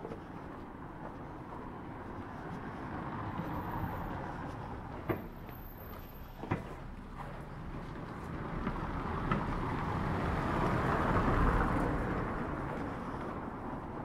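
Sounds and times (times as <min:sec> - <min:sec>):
city street noise: 0:00.0 - 0:14.0
vehicle passing: 0:01.1 - 0:14.0.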